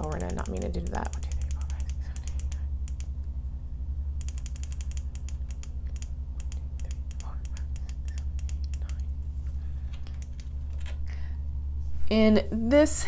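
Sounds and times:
grow light hanger clicking: 0:00.0 - 0:03.1, 0:04.2 - 0:09.0
steady low hum: 0:00.0 - 0:13.0.

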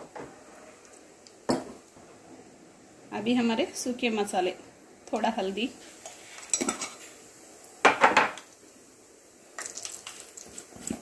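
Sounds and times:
utensils clinking against pan: 0:06.4 - 0:07.0.

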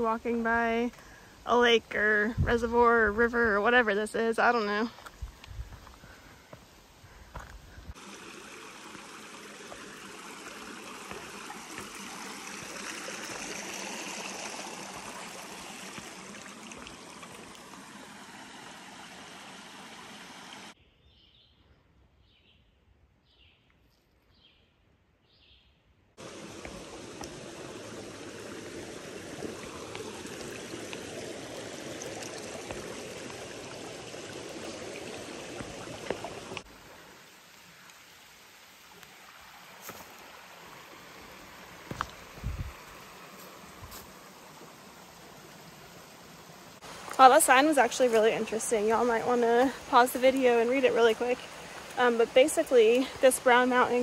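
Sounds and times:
creek water rushing over rocks: 0:07.3 - 0:20.8, 0:26.2 - 0:54.0.

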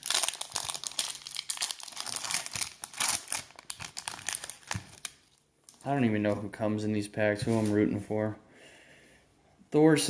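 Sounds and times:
plastic wrappers crinkling and tearing: 0:00.0 - 0:06.0.

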